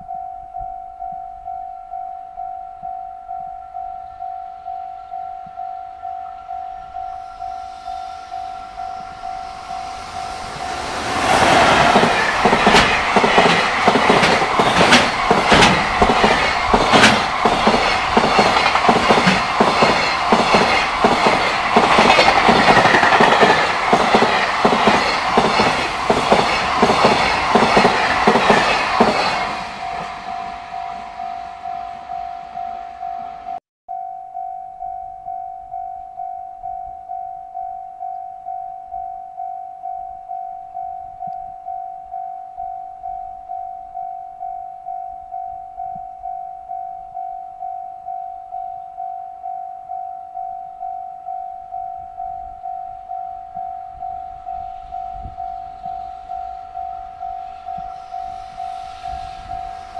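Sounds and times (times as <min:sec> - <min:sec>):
train wheels clattering over rail joints: 0:11.1 - 0:30.0
level crossing alarm dinging: 0:11.6 - 0:59.9.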